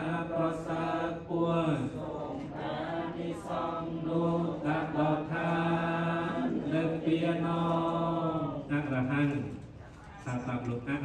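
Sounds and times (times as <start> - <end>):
monk chanting into a microphone: 0.0 - 2.2.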